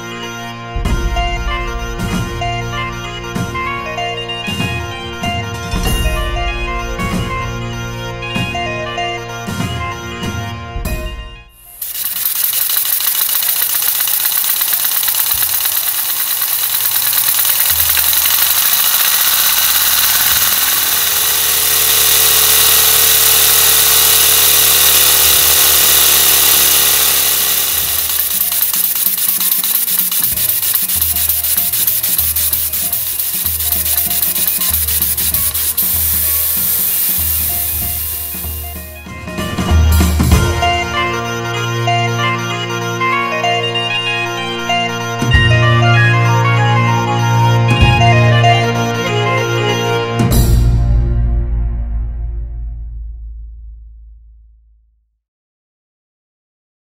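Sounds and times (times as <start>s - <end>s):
air-driven model engine running fast: 11.6s - 39.0s.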